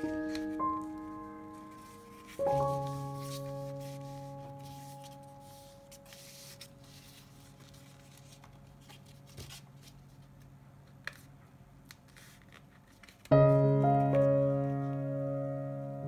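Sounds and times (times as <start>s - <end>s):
background music chord: 0.0s - 7.8s, 13.3s - 16.0s
piano music: 0.0s - 9.2s, 13.3s - 16.0s
paper rustling and folding: 0.0s - 11.3s, 11.9s - 14.2s.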